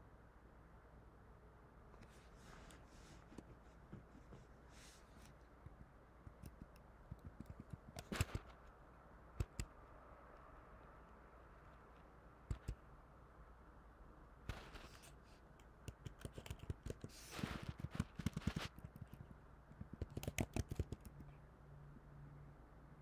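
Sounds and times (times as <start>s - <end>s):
fast typing on keyboard: 6.5s - 8.5s, 15.9s - 21.4s.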